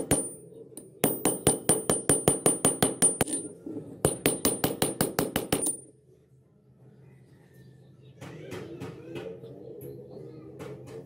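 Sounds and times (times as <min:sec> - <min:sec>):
hammer striking metal pliers: 0:00.0 - 0:03.5, 0:04.1 - 0:05.9.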